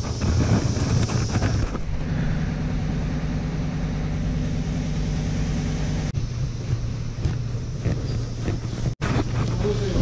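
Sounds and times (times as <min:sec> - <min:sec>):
motor humming: 0:00.0 - 0:10.0.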